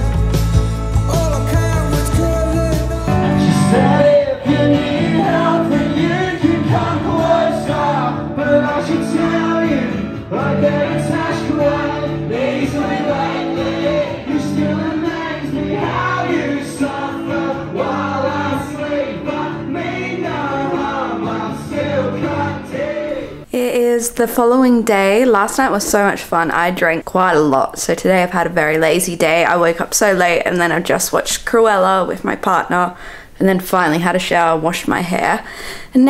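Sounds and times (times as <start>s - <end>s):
rock music with singing: 0.0s - 23.5s.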